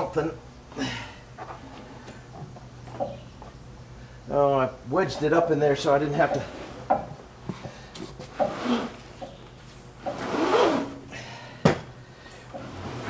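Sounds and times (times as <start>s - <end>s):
belt scraping against metal: 8.3s - 9.3s, 10.0s - 11.0s.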